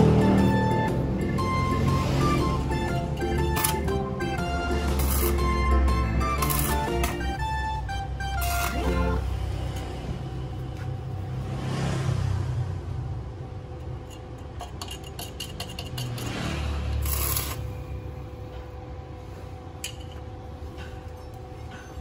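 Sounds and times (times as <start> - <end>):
arc welder crackling: 3.0 - 7.4, 8.4 - 10.0, 16.2 - 18.0.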